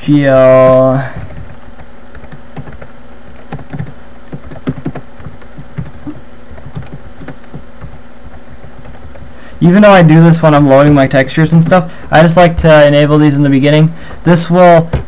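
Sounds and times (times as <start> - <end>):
steady low hum: 0.0 - 15.0
computer keyboard typing: 1.2 - 9.8.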